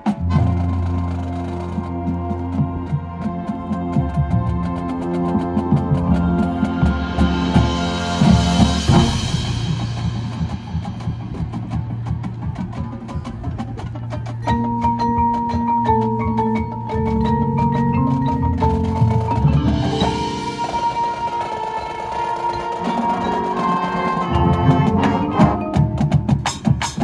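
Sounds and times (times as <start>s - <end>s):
held brass chords: 19.6s - 26.0s.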